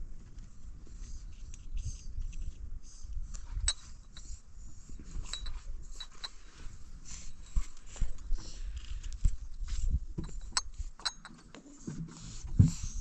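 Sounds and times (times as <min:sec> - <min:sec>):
drinking glass clinking: 0:05.3 - 0:06.3.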